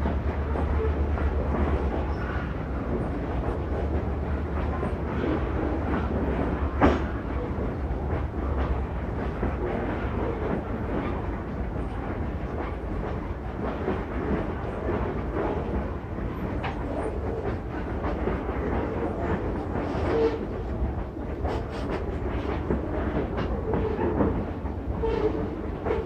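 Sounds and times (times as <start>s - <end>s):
steel wheels rumbling on rail: 0.0s - 26.0s
train wheel squeal: 0.4s - 2.6s, 18.7s - 20.8s, 21.4s - 26.0s.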